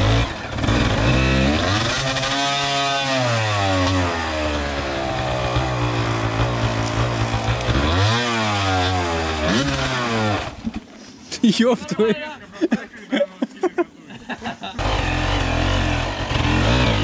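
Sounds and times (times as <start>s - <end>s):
dirt bike engine revving: 0.0s - 10.6s, 14.8s - 17.0s.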